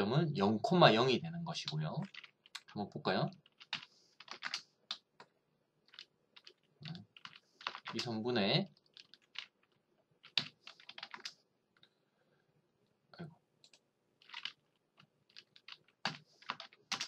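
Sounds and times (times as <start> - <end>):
computer keyboard typing: 1.6 - 11.4, 13.6 - 17.0.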